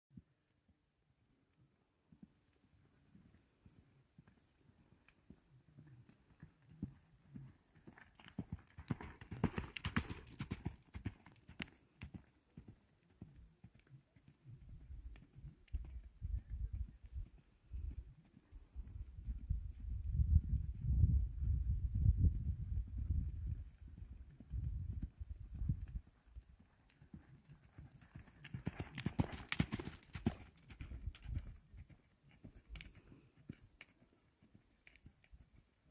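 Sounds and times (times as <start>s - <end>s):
horse hoofbeats on sand: 3.6s - 20.0s, 24.3s - 35.7s
hoofbeats on sand: 24.0s - 35.7s.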